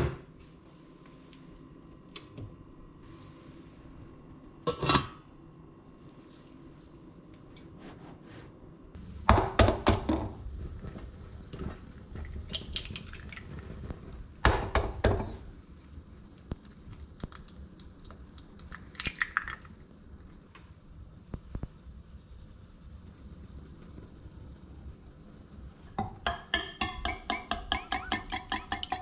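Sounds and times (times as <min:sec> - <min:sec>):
egg cracked against glass bowl: 0:18.7 - 0:19.7.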